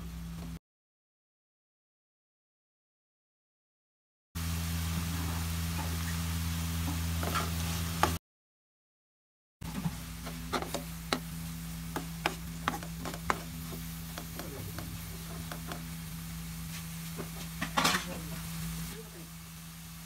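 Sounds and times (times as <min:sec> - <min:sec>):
faint sizzle: 0:04.4 - 0:08.2, 0:09.7 - 0:20.0
steady low hum: 0:09.7 - 0:20.0
metal spoon scraping a pan: 0:10.2 - 0:15.9.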